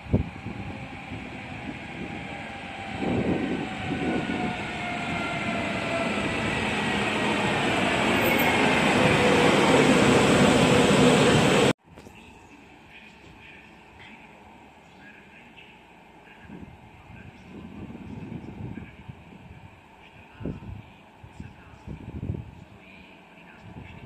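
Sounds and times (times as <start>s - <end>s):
train rumble: 0.0s - 11.8s.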